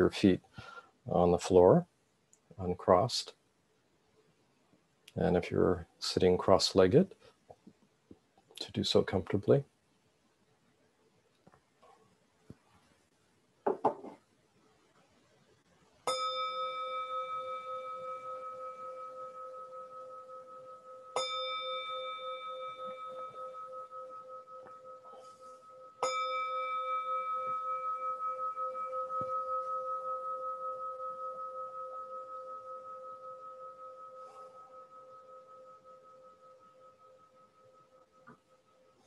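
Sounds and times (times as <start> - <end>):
handling knock: 13.7 - 14.2
singing bowl ringing: 16.0 - 39.0.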